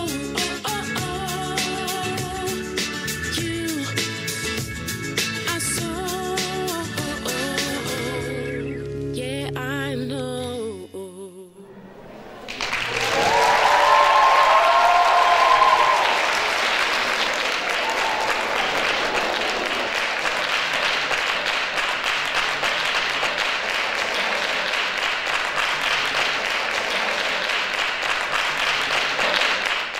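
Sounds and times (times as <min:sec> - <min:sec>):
person singing: 0:00.0 - 0:04.5, 0:05.4 - 0:12.0
audience applauding: 0:11.9 - 0:29.9.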